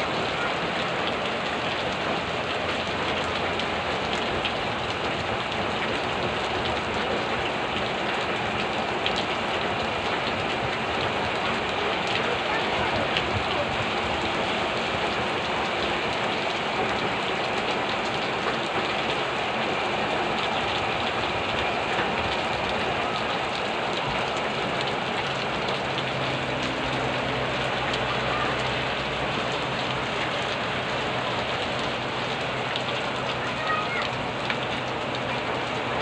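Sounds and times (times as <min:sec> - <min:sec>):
heavy rain on roofs: 0:00.0 - 0:36.0.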